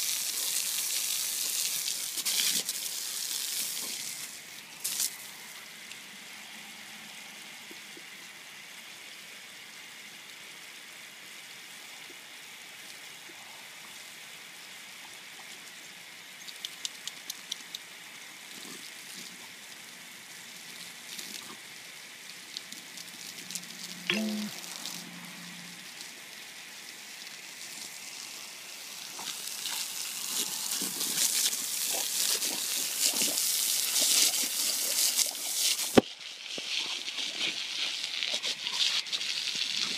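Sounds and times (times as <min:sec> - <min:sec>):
water splashing on concrete: 0:00.0 - 0:05.2, 0:29.0 - 0:39.9
garden hose spraying water: 0:00.0 - 0:06.3, 0:15.5 - 0:39.9
short pitched call: 0:24.1 - 0:24.9.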